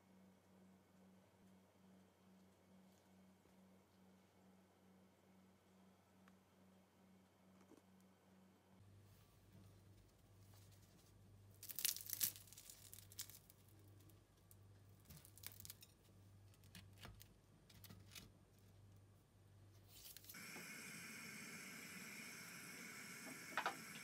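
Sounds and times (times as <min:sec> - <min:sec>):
fried pastry crackling and tearing: 0:11.5 - 0:18.7, 0:19.9 - 0:20.4.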